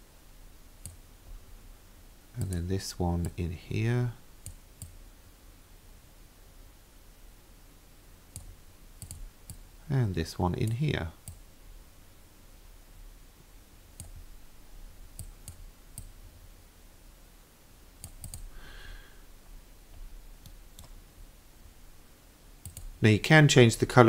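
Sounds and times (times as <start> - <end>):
low steady hum: 0.0 - 24.0
computer mouse clicks: 0.8 - 1.0, 2.4 - 2.6, 4.4 - 5.0, 8.3 - 9.6, 10.6 - 11.4, 14.0 - 14.2, 15.2 - 16.1, 18.0 - 18.5, 19.9 - 21.0, 22.6 - 22.9.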